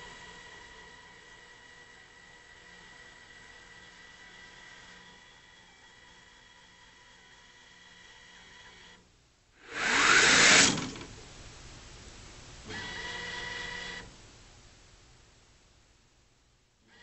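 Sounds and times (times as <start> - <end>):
loud rushing noise: 9.6 - 11.1
electric actuators whining: 9.7 - 11.1.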